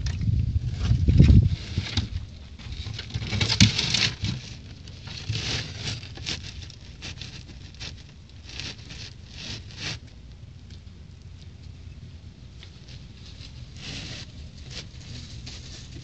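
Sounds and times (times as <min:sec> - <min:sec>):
rustling and scraping: 0:00.0 - 0:16.0.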